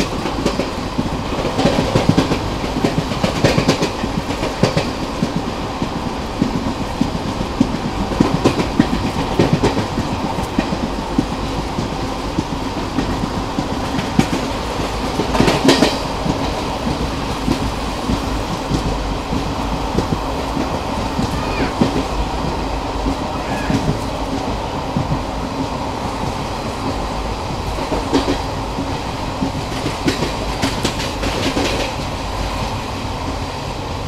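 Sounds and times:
clickety-clack over rail joints: 0.0 - 34.0
train wheels rumbling on rail: 0.0 - 34.0.

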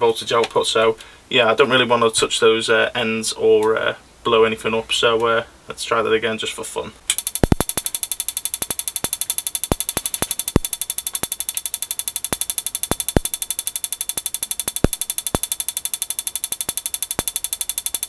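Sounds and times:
spark igniter clicking: 7.1 - 18.0.

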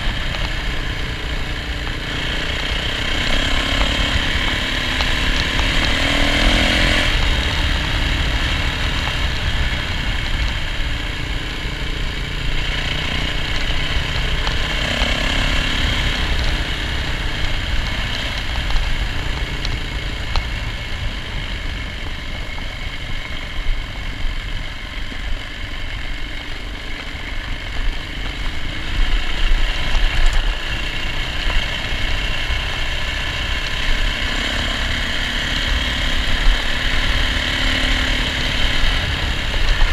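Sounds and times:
dirt bike engine running: 0.0 - 39.9.

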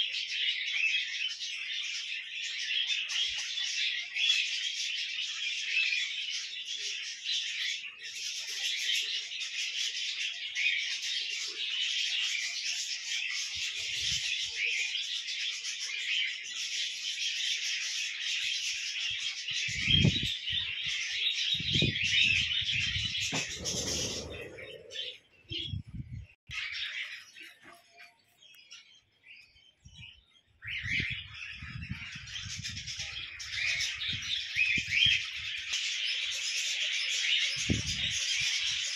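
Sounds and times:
flock of small birds chirping: 0.0 - 38.9
low thuds: 22.9 - 24.8.

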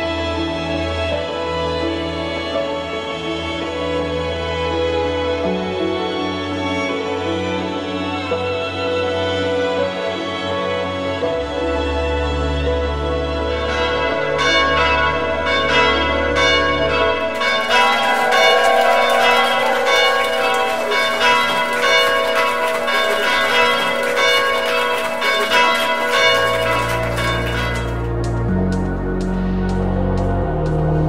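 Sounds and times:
church bells ringing: 14.0 - 28.4.

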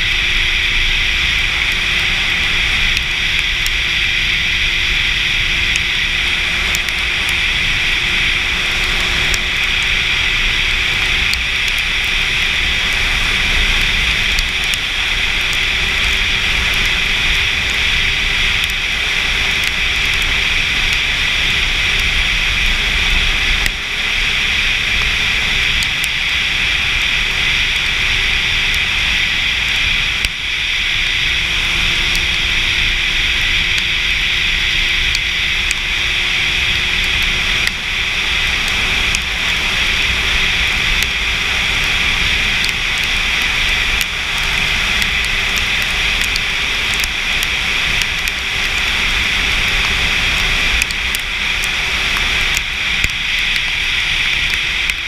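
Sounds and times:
tyre hiss on wet road: 0.0 - 55.0.

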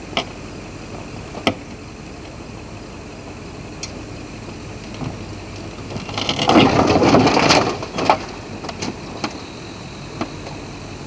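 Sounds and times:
low engine hum: 0.0 - 11.0
car body crashing onto gravel: 5.8 - 9.4.

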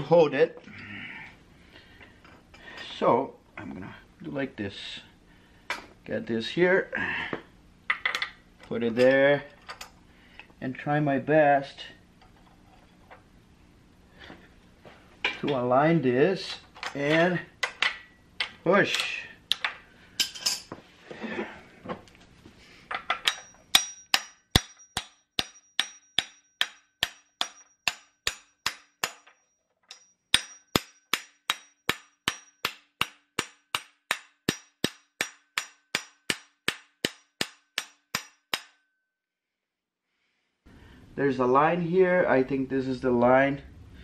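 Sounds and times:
metal parts clinking: 16.6 - 20.7, 22.9 - 24.1.

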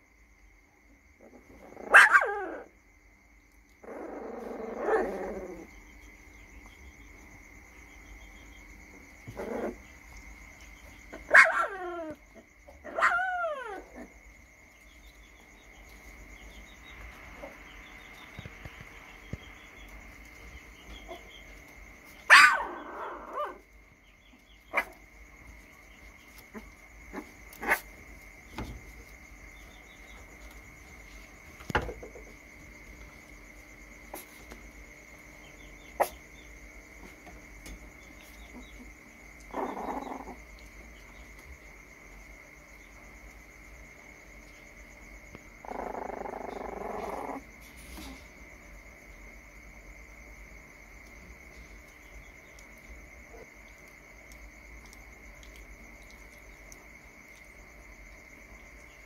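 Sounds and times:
puppy barking high-pitched: 1.8 - 2.7, 11.2 - 12.2, 12.8 - 14.0, 22.3 - 23.6, 24.7 - 25.0.

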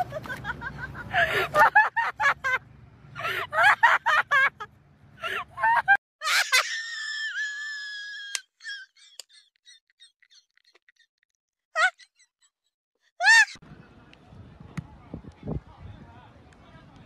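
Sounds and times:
long high scream: 6.4 - 8.4.

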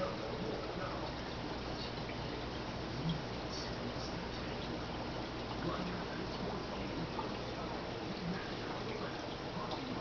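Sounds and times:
low steady hum: 0.0 - 10.0
trickling water: 0.0 - 10.0.

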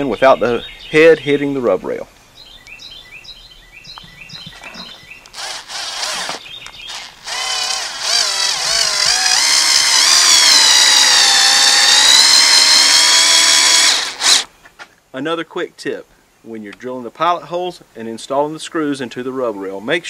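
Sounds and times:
birds chirping: 0.0 - 14.8
cordless drill motor whine: 5.3 - 14.5.

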